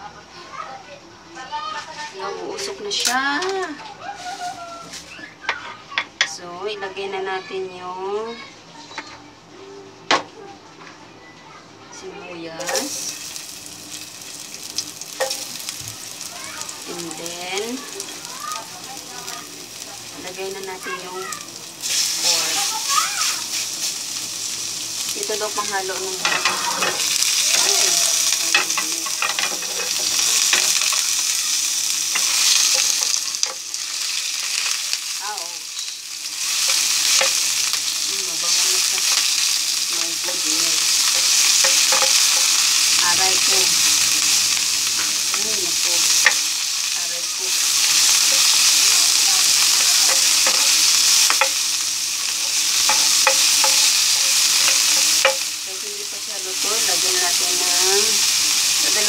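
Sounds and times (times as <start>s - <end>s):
meat sizzling in a frying pan: 1.4s - 8.5s, 11.9s - 59.0s
wooden spoon scraping a pan: 26.0s - 31.1s.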